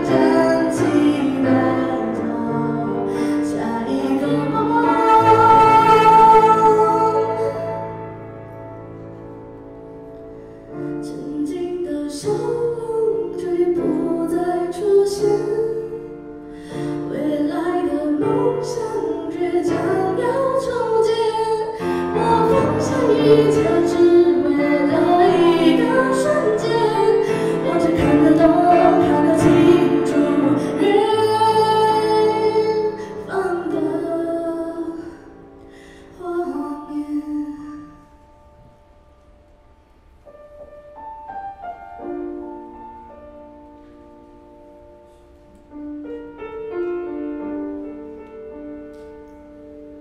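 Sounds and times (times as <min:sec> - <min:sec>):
woman singing a ballad: 0:00.0 - 0:07.8, 0:11.0 - 0:35.4, 0:36.0 - 0:38.1
grand piano: 0:00.0 - 0:50.0.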